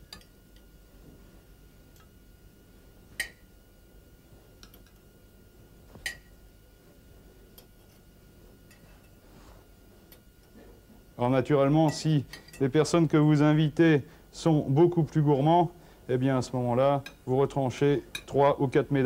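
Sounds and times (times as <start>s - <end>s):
utensils clinking on china plate: 11.9s - 12.7s.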